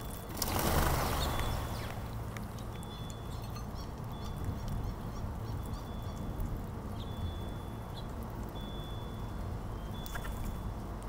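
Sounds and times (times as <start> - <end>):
birds chirping: 0.0 - 10.7.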